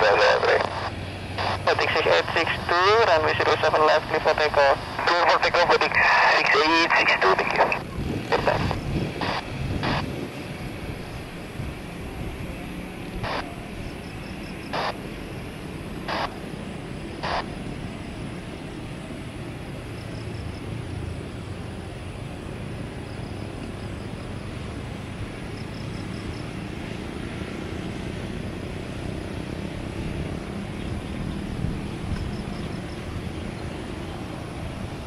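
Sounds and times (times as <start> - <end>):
jet engines rumbling: 0.0 - 35.0.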